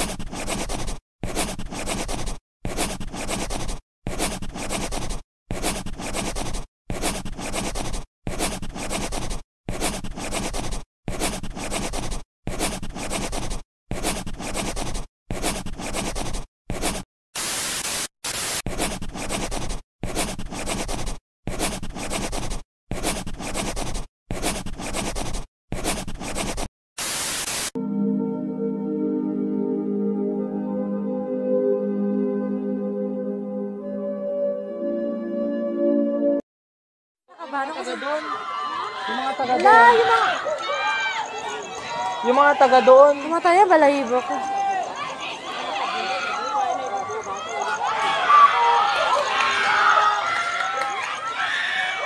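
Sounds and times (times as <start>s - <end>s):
scratchy hissing noise: 0.0s - 27.8s
soft ambient music: 27.8s - 36.4s.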